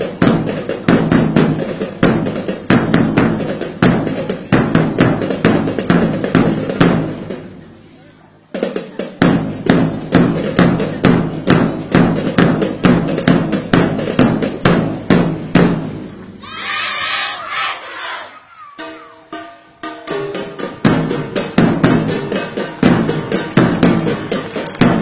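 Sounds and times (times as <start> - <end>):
bronze gongs beaten in rhythm: 18.7 - 24.2.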